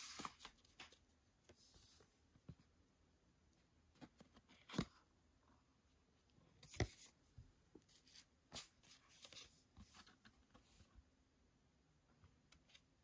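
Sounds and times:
paper and card rustling: 0.0s - 2.0s, 7.9s - 10.7s.

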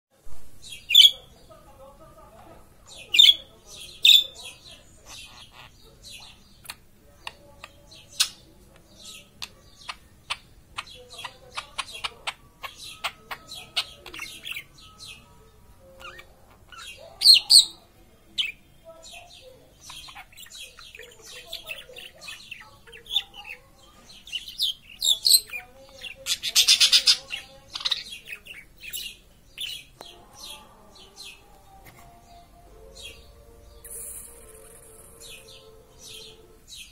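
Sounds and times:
budgerigar chirping and chattering: 0.6s - 1.5s, 2.8s - 31.5s
sparrow chirps: 0.6s - 36.9s.

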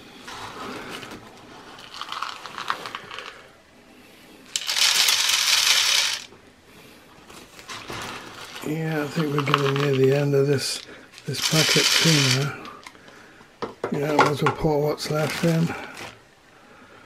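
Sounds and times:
seed rattling: 0.3s - 3.5s, 4.5s - 6.3s, 7.5s - 12.9s.

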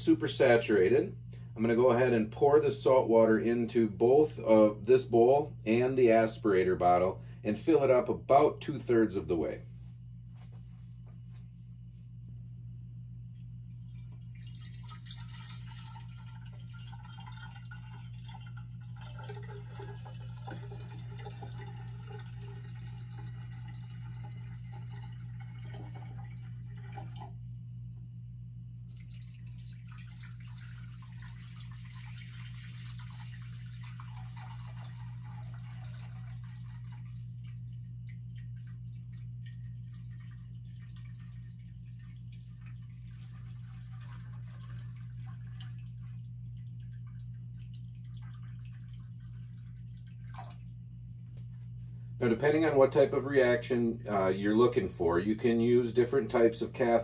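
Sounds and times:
steady low hum: 0.0s - 57.0s
water trickling and splashing: 13.6s - 27.4s, 28.7s - 50.9s.

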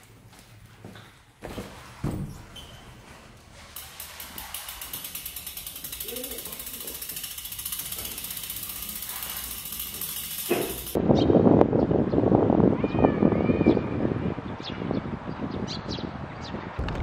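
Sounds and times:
bicycle freewheel hub clicking: 3.8s - 11.0s.

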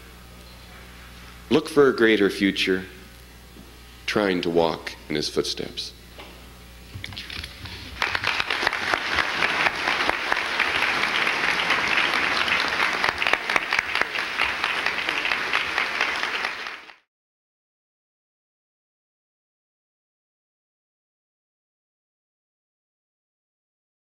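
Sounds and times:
audience applauding: 7.6s - 17.1s.

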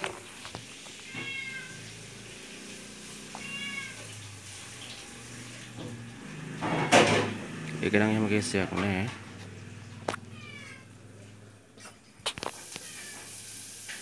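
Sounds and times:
cat meowing: 0.9s - 2.2s, 3.3s - 4.2s, 10.1s - 11.0s, 12.7s - 13.4s.

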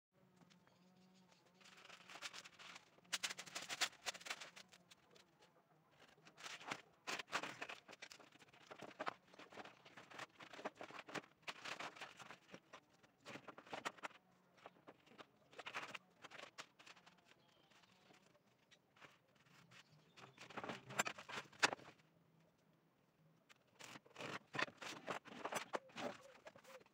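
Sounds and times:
sandpaper rustling and scraping: 1.6s - 4.6s.

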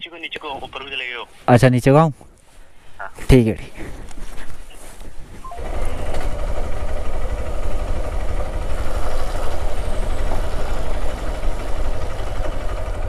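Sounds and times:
motorcycle engine idling: 5.6s - 13.0s.

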